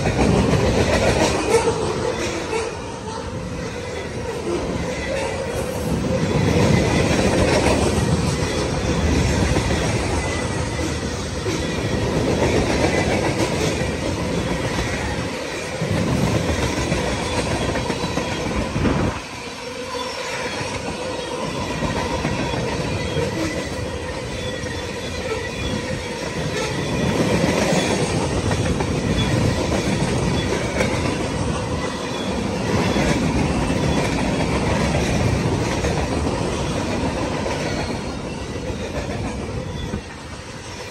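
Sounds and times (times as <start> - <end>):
train wheels clattering over rail joints: 0.0 - 2.6
thin ringing of wheels on rail: 0.0 - 40.9.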